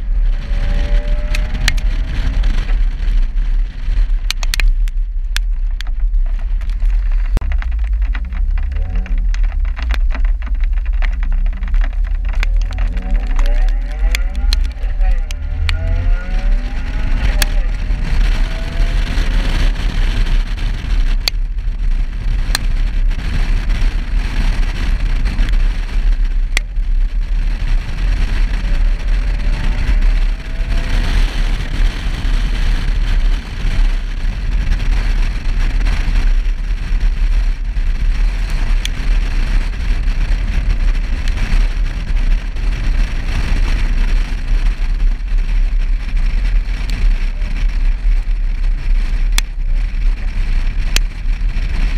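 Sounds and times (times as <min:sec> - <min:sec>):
road and wind noise: 0:00.0 - 0:51.9
raindrops ticking on camera: 0:00.6 - 0:51.9.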